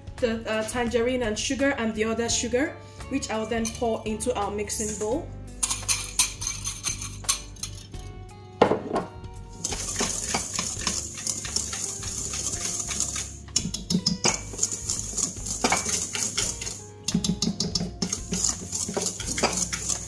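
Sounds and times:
background music: 0.0s - 20.0s
whisk scraping metal bowl: 9.6s - 20.0s.

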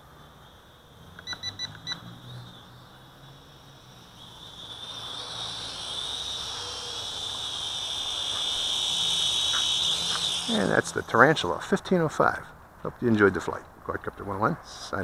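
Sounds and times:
drone motors whining: 0.0s - 11.5s
electronic beeps: 1.2s - 2.4s.

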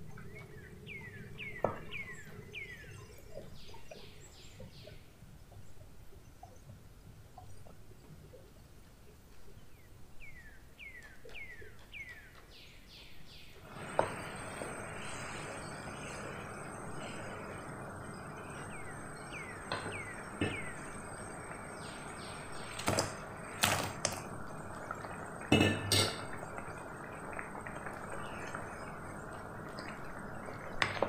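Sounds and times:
paste sizzling in oil: 13.6s - 26.6s.

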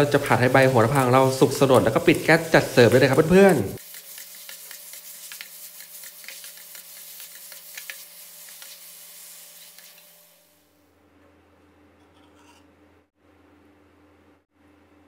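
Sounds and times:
food sizzling in oil: 0.0s - 10.6s
spatula scraping a pan: 0.1s - 10.2s, 12.1s - 12.7s.

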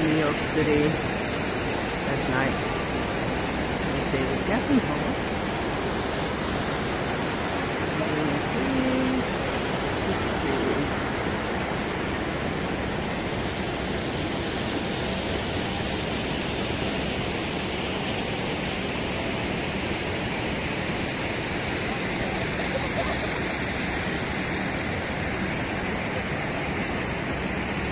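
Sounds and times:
city traffic: 0.0s - 27.9s
fountain water rushing: 0.0s - 27.9s.

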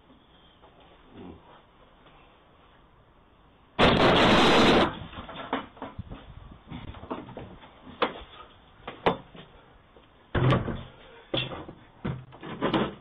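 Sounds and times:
wooden gate and door banging: 10.3s - 13.0s.

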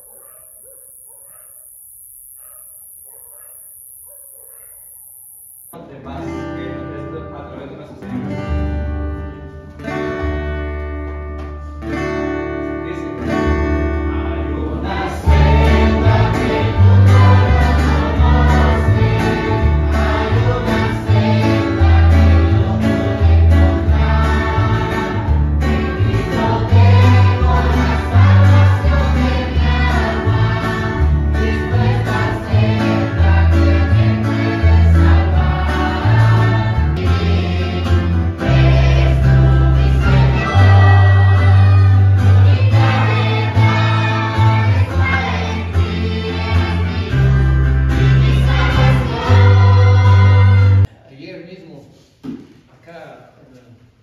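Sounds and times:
guitar chords: 6.2s - 50.9s
group of voices singing: 14.3s - 50.9s
bass line: 15.0s - 50.9s.

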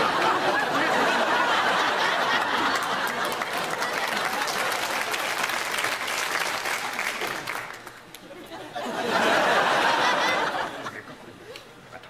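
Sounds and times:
audience laughing: 0.0s - 5.4s, 8.2s - 11.6s
audience clapping: 0.0s - 8.4s.

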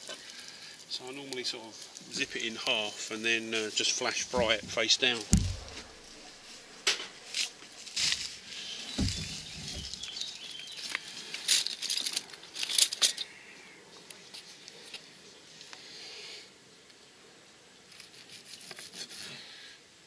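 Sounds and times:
dull thumps: 4.1s - 6.3s, 8.9s - 10.0s.

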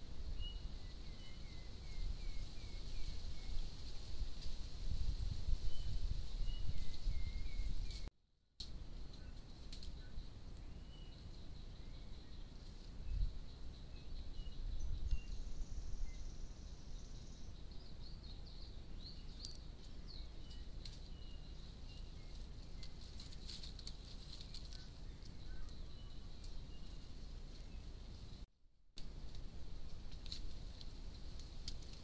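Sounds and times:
bird chirps: 0.4s - 3.7s, 9.2s - 23.0s, 24.0s - 28.0s
insect hum: 8.8s - 28.4s
dry leaves crackling underfoot: 19.3s - 28.4s, 29.0s - 32.0s.

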